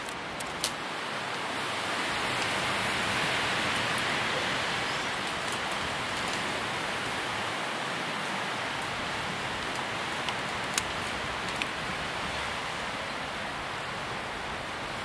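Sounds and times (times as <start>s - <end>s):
steady rain hiss: 0.0s - 15.0s.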